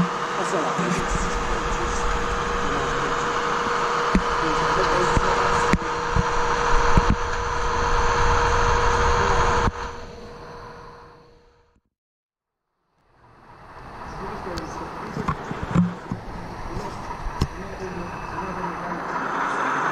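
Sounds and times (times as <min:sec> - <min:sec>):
model train track noise: 0:00.0 - 0:07.2, 0:13.2 - 0:19.9
model train hum: 0:00.0 - 0:11.4, 0:13.1 - 0:19.9.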